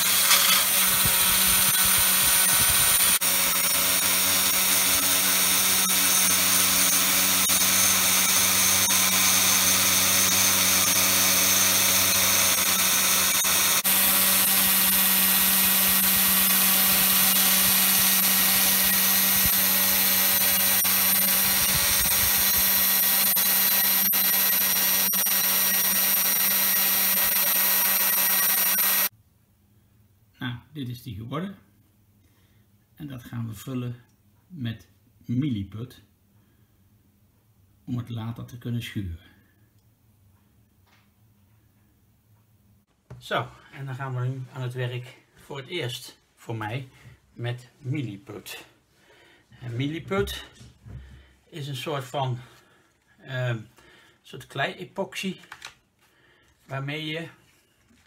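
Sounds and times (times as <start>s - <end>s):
cnc router cutting wood: 0.0s - 29.1s.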